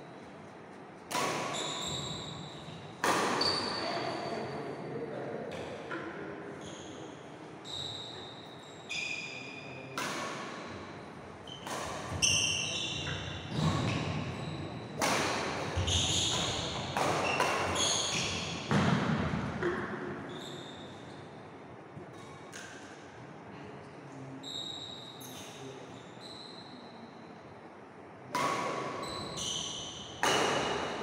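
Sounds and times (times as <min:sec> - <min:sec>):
rackets striking shuttlecock: 0:01.0 - 0:02.1, 0:03.0 - 0:03.6, 0:11.6 - 0:14.1, 0:15.0 - 0:20.2, 0:30.2 - 0:31.0
sneakers squeaking: 0:01.1 - 0:04.8, 0:06.5 - 0:21.3, 0:24.4 - 0:27.1, 0:28.4 - 0:31.0.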